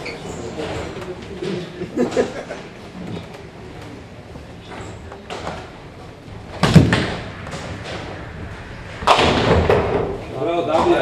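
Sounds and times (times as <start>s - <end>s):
bowling ball thud and rolling rumble: 6.3s - 11.0s.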